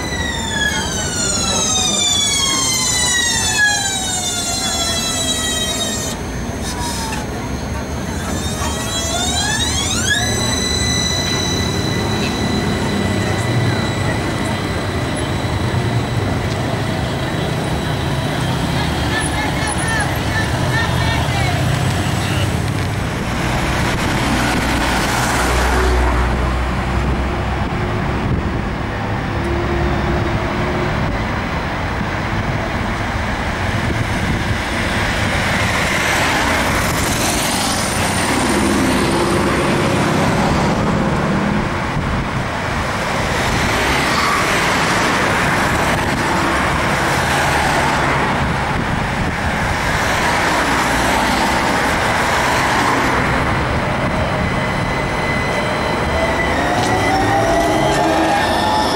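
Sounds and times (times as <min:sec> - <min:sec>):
cars moving past: 0:34.2 - 0:58.9.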